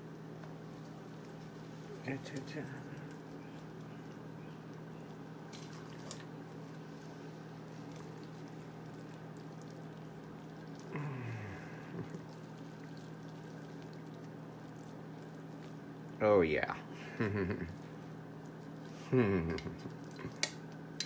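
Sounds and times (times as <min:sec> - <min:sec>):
steady low hum: 0:00.0 - 0:21.0
liquid dripping: 0:00.1 - 0:16.2.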